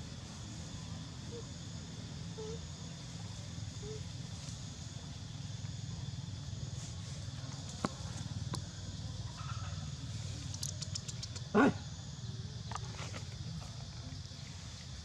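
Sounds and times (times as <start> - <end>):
faint clicks: 10.4 - 11.5
high ticks: 10.4 - 11.5.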